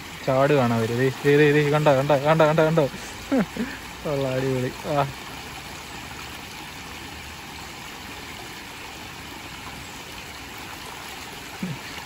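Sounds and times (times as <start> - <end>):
water rushing down a canal: 0.0 - 12.0.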